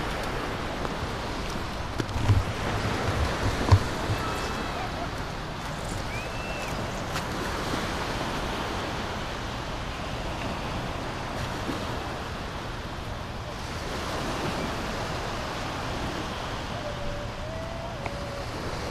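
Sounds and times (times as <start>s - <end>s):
wind on microphone: 0.0s - 9.2s, 13.6s - 18.9s
small waves on sandy shore: 0.0s - 18.9s.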